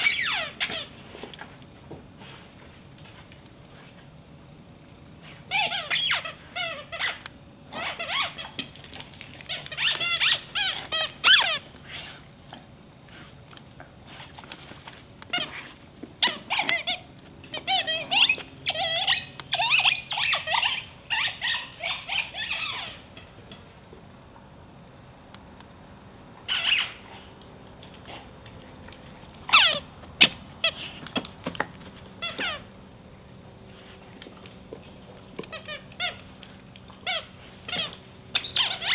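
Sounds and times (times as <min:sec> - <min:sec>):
squeaky dog toy squealing: 0:00.0 - 0:00.9, 0:05.5 - 0:08.6, 0:09.5 - 0:11.6, 0:16.2 - 0:23.1, 0:26.5 - 0:27.0, 0:29.5 - 0:30.8, 0:32.2 - 0:32.7, 0:35.4 - 0:36.3, 0:37.0 - 0:38.9.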